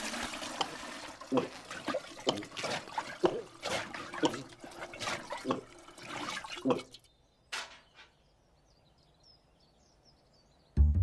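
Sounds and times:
cartoon water glugging: 0.0 - 7.1.

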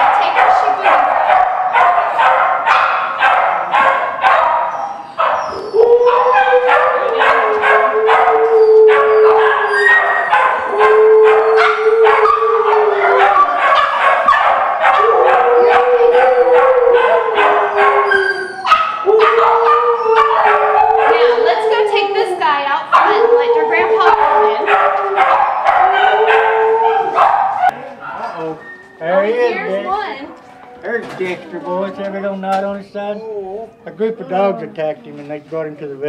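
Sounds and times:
dog howling: 0.0 - 27.8
dogs barking: 0.0 - 27.8.

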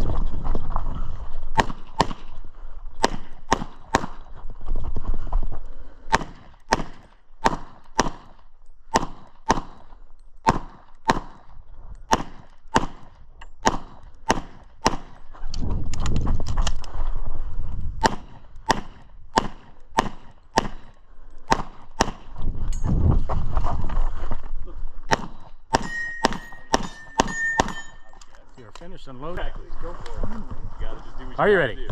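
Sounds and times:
pistol shots: 1.5 - 2.4, 3.0 - 4.3, 6.1 - 11.5, 12.1 - 15.3, 18.0 - 22.3, 25.1 - 28.1
low rumble of shooter moving: 13.1 - 20.4.

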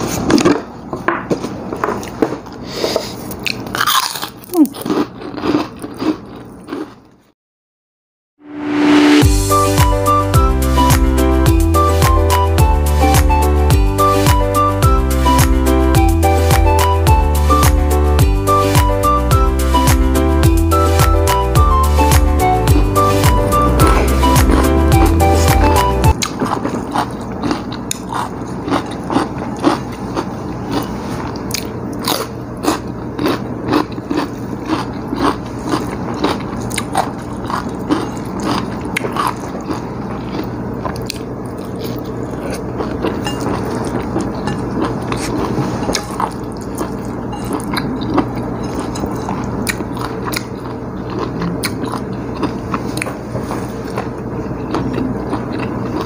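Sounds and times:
steady low hum: 9.0 - 56.0
person chewing with wet clicks: 24.5 - 53.2, 53.8 - 56.0.

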